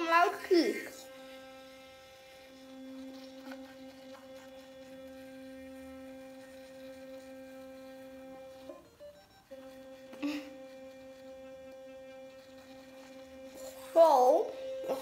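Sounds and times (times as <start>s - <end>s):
electric toothbrush humming: 0.0s - 15.0s.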